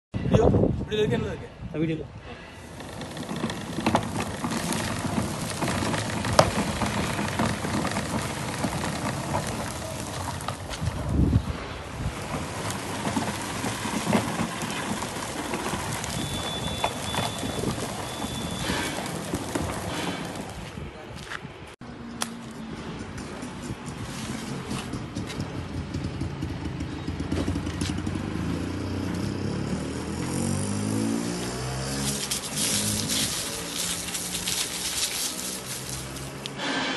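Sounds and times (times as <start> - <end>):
push sweeper brushes scraping concrete: 2.6 - 20.8, 31.4 - 36.9
vehicle engine running: 2.7 - 11.2.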